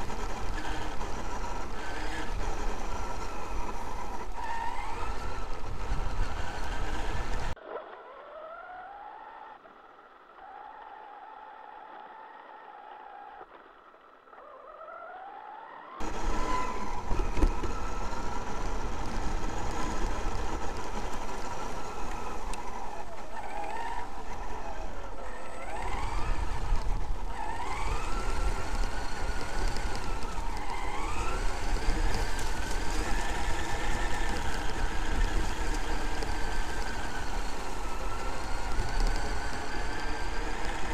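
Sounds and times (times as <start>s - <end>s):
electric motor whining: 0.0s - 9.6s, 15.3s - 40.9s
tyres rumbling through grass: 16.0s - 40.9s.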